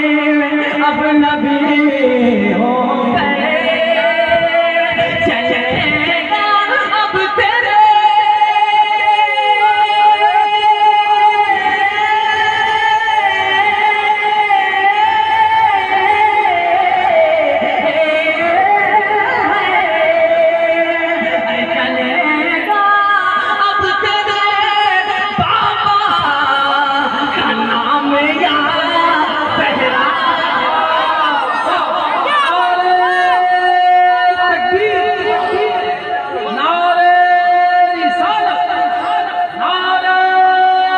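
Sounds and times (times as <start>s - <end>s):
man singing through loudspeakers: 0.0s - 40.9s.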